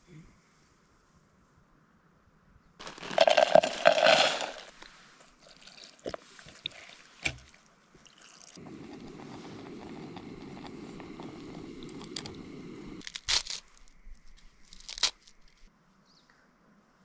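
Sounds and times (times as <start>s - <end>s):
dry seaweed crackling crunches: 2.8s - 7.6s, 8.2s - 12.4s, 13.0s - 15.7s.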